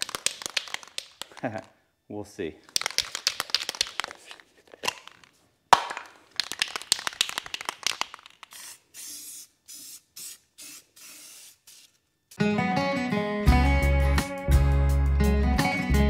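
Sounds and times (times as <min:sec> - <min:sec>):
spray can ball rattling: 0:00.0 - 0:01.7, 0:02.6 - 0:12.0
spray can hissing bursts: 0:06.4 - 0:12.4.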